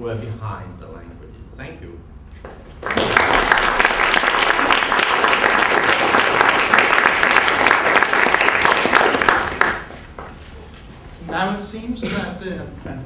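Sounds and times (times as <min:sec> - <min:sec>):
audience applauding: 0:02.7 - 0:10.3.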